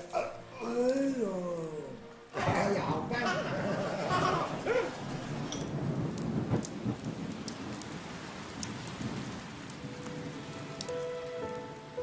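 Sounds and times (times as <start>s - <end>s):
soft music notes: 0.0s - 3.3s, 9.8s - 12.0s
steady rain: 0.0s - 12.0s
drops dripping off eaves: 4.2s - 12.0s.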